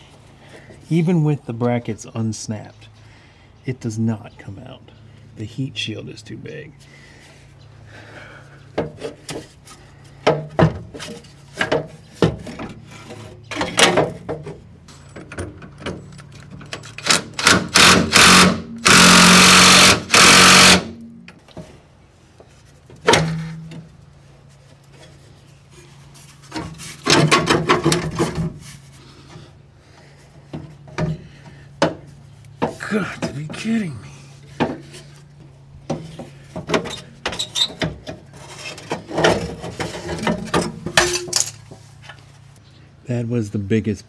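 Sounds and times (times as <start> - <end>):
cordless drill running: 17.8 - 20.9.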